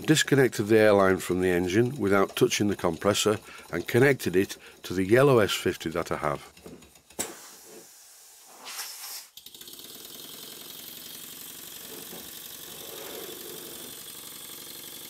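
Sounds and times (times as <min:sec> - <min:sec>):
model steam engine running fast: 0:00.2 - 0:05.7, 0:09.4 - 0:15.0
compressed air hiss: 0:07.2 - 0:09.4.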